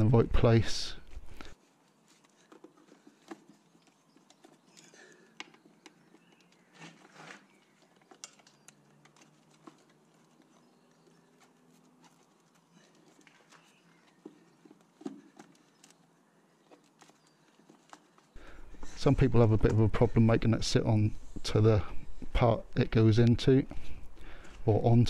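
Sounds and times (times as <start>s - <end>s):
plastic parts clicking and knocking: 2.4s - 10.8s.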